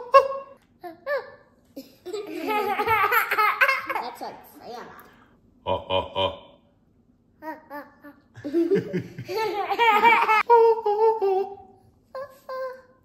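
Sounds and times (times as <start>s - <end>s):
toddler girl laughing: 1.1s - 4.3s, 7.7s - 12.8s.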